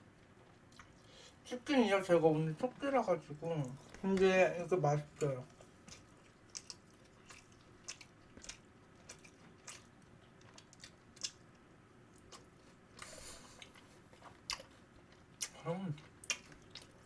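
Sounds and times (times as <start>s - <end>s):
chewing and crunching: 0.1s - 1.3s, 5.1s - 17.0s.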